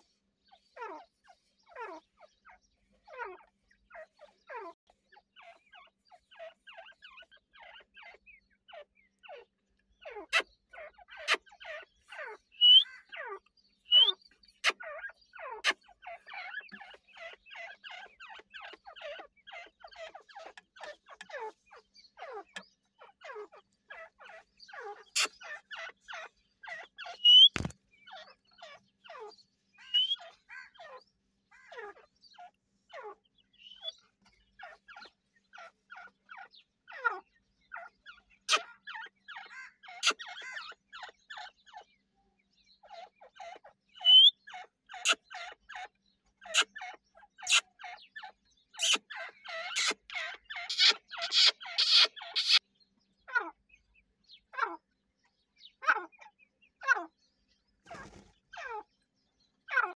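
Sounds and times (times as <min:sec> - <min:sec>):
high bird chirps: 0:00.0 - 0:42.1, 0:42.7 - 0:59.9
birds clucking and cheeping: 0:00.0 - 0:59.9
sharp clicks: 0:27.3 - 0:27.8.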